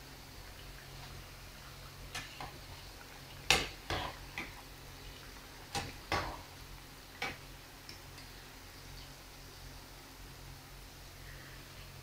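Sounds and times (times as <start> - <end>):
utensils tapping frying pan: 2.1 - 8.3.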